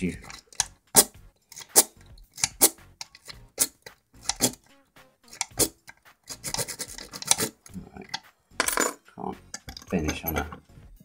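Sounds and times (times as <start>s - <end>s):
lock pick scraping in lock: 0.2s - 4.6s, 5.3s - 7.6s.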